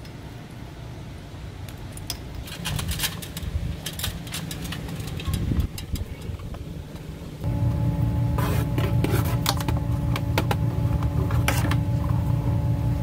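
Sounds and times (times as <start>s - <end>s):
low steady rumble: 0.0s - 13.0s
cable handling clicks and rustles: 1.7s - 7.1s.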